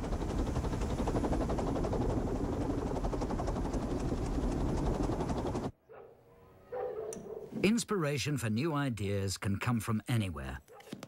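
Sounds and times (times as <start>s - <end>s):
wind turbine rotor whirring: 0.0s - 5.8s.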